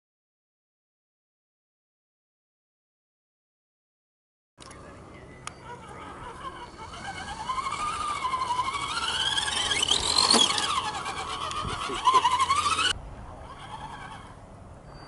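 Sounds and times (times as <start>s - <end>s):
electric motors whining: 5.4s - 14.4s.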